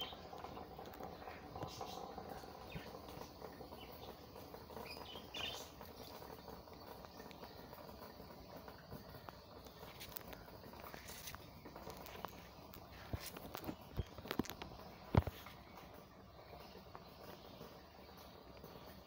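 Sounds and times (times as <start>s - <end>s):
light ticks: 0.0s - 3.3s.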